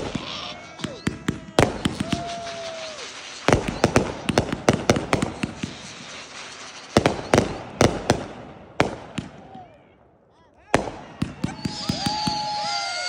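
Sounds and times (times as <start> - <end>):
firework whistle falling: 0.0 - 8.0, 11.2 - 13.0
firework bangs and crackles: 0.0 - 10.0, 10.6 - 13.0.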